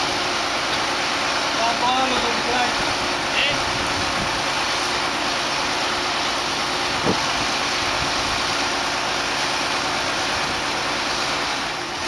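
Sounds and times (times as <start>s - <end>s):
lift engine running: 0.0s - 12.0s.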